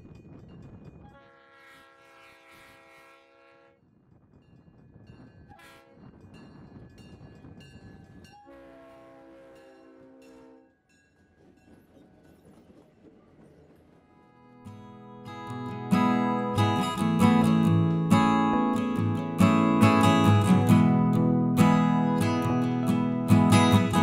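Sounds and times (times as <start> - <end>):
train rumbling: 0.0 - 24.0
locomotive horn blasts: 1.0 - 3.8, 5.5 - 6.1, 8.4 - 10.8.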